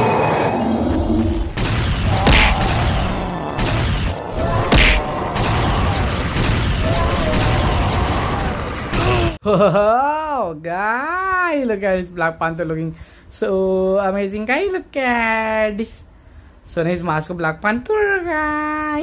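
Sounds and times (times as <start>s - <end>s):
heavy cartoon hits: 1.5s - 9.4s.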